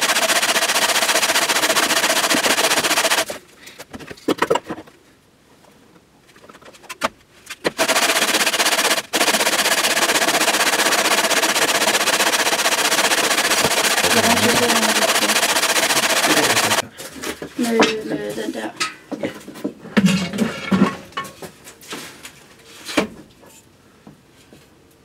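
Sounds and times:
sanding wood: 0:00.0 - 0:03.4, 0:07.8 - 0:16.8.

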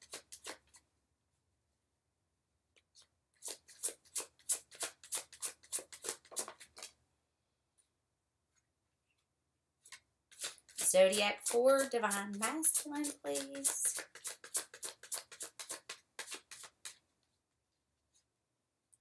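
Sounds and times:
cards shuffled by hand: 0:00.0 - 0:00.8, 0:02.8 - 0:07.0, 0:09.8 - 0:17.0.

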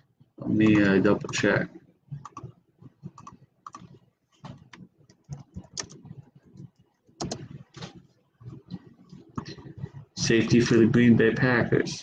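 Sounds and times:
mouse and keyboard clicking: 0:02.2 - 0:02.5, 0:03.1 - 0:06.2, 0:07.2 - 0:07.9.

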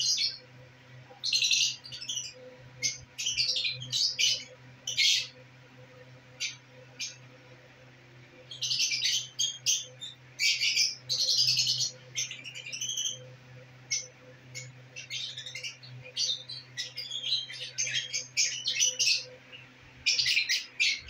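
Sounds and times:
lovebirds chirping: 0:00.0 - 0:07.6, 0:08.4 - 0:21.0
faint low hum: 0:00.0 - 0:21.0.

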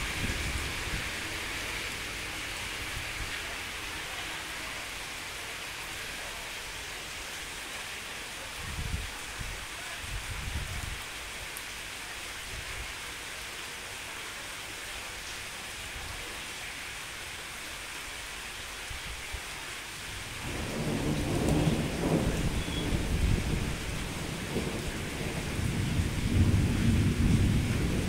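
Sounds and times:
rain hissing: 0:00.0 - 0:28.0
rolling thunder: 0:20.3 - 0:28.0.

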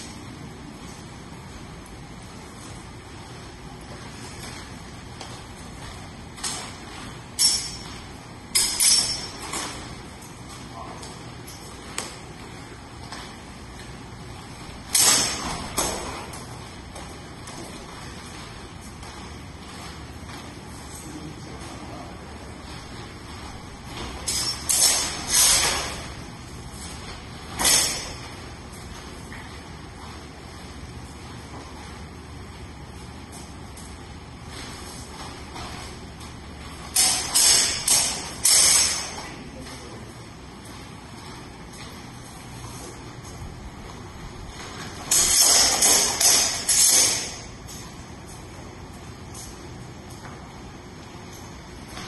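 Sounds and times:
steel swords clashing: 0:07.3 - 0:09.9, 0:14.9 - 0:16.1, 0:24.1 - 0:26.1, 0:27.6 - 0:28.2, 0:36.9 - 0:39.2, 0:45.1 - 0:47.5.

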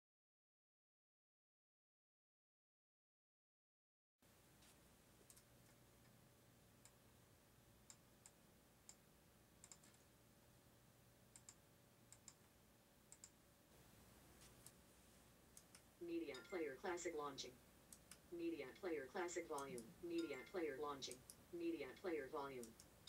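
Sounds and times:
low steady hum: 0:04.2 - 0:23.0
computer mouse clicks: 0:05.2 - 0:06.2, 0:09.6 - 0:10.1, 0:11.3 - 0:12.5, 0:13.1 - 0:13.4, 0:15.5 - 0:16.4, 0:17.9 - 0:18.3, 0:22.6 - 0:23.0.

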